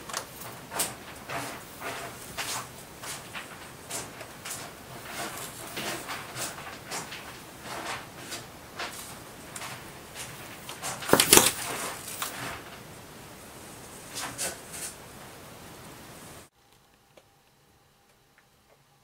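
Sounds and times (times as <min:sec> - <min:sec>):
cat scrabbling and knocking: 0:00.0 - 0:13.0
cat scratching carpet: 0:00.0 - 0:15.3.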